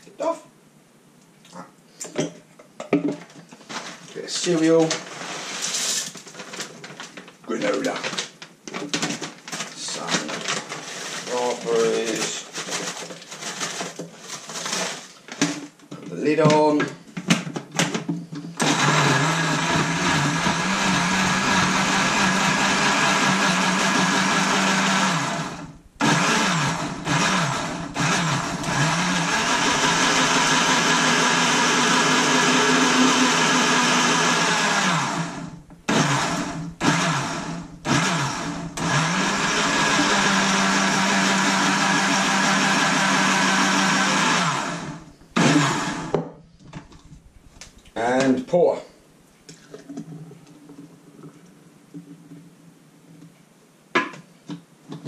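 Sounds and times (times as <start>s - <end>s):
blender motor running: 18.6s - 46.2s.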